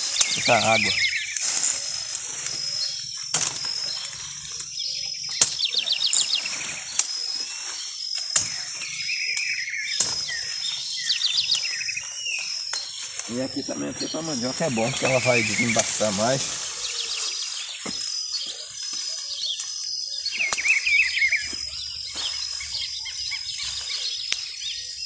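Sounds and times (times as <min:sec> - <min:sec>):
bird trilling: 0:00.0 - 0:25.0
leaves and branches rustling: 0:00.0 - 0:25.0
machete chopping stems: 0:03.3 - 0:03.8, 0:09.4 - 0:10.6.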